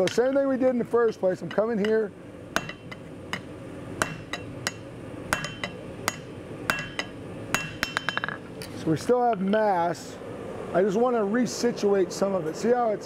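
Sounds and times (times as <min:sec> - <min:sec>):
hammer striking steel on anvil: 0:00.0 - 0:02.0, 0:02.6 - 0:08.4.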